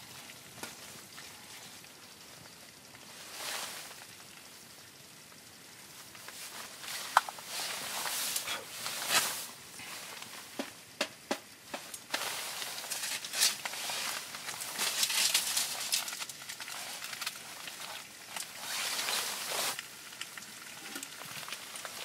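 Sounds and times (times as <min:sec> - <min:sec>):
jacket rustling: 0:06.3 - 0:10.6.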